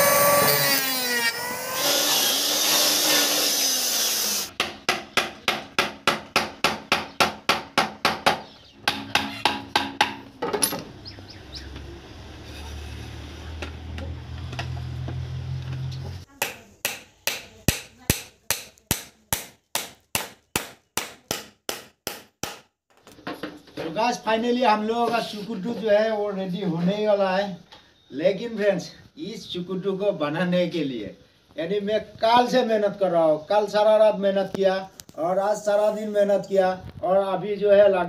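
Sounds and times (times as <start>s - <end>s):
electric drill boring into wood: 0.0s - 4.5s.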